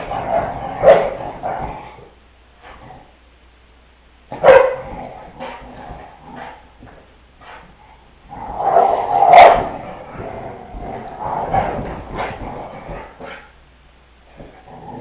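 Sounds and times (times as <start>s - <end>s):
dogs playing: 0.0s - 3.2s, 4.3s - 13.6s
dog barking: 4.4s - 4.9s
dog yapping: 4.4s - 4.9s.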